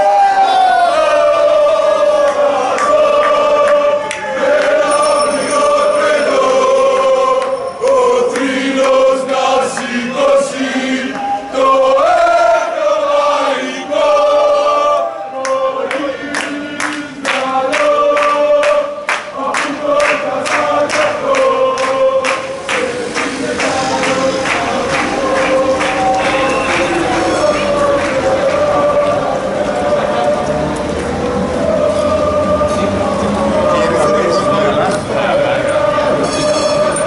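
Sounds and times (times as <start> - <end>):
crowd singing a chant: 0.0 - 37.0
rhythmic clapping: 2.2 - 11.2, 15.4 - 32.6.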